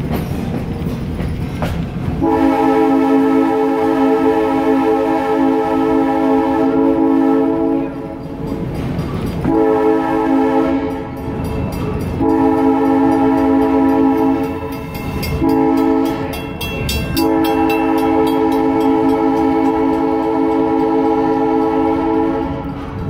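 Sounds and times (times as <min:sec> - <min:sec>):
locomotive horn blasts: 0:02.2 - 0:08.2, 0:09.4 - 0:11.2, 0:12.2 - 0:16.4, 0:17.1 - 0:22.7.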